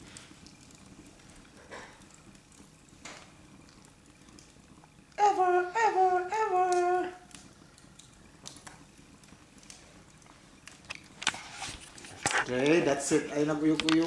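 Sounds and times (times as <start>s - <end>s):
person humming: 5.2s - 7.2s.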